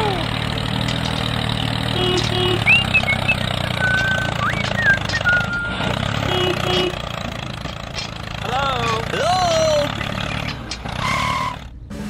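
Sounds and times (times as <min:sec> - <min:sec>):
tractor engine droning: 0:00.0 - 0:12.0
high whistling chirps: 0:02.6 - 0:05.9.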